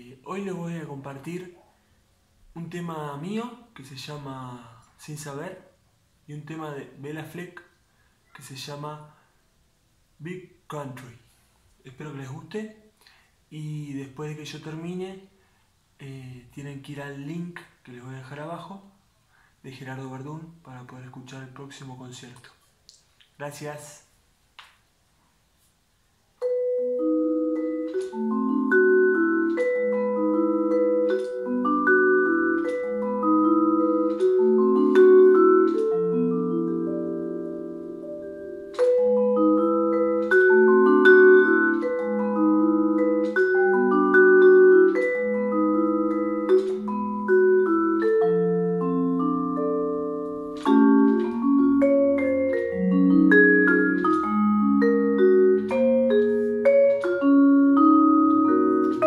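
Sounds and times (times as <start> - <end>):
vibraphone played with mallets: 26.4 - 59.0.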